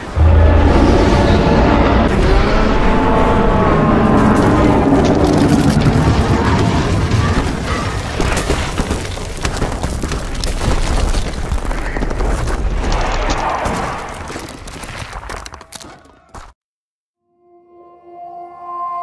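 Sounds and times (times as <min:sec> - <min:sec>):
orchestral music: 0:00.0 - 0:06.3
deep rumble: 0:00.0 - 0:08.7
rock cracking and crumbling: 0:04.2 - 0:16.5.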